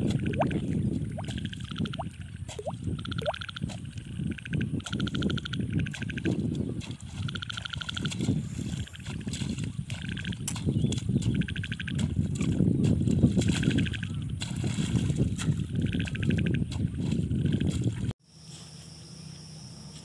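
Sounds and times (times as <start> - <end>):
hoe splashing in wet mud: 4.8 - 18.1.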